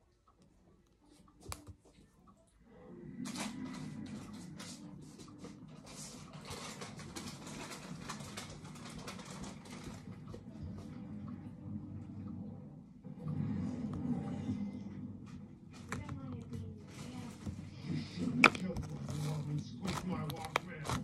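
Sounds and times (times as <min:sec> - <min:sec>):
slime being kneaded: 0:18.4 - 0:21.0.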